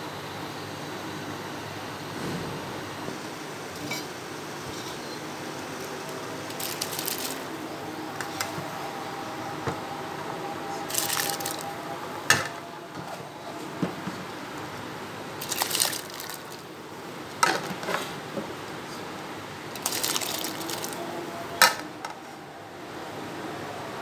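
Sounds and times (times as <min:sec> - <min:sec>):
water splashing into a pot: 0:06.5 - 0:07.5, 0:10.9 - 0:11.6, 0:15.4 - 0:16.7, 0:19.8 - 0:21.0.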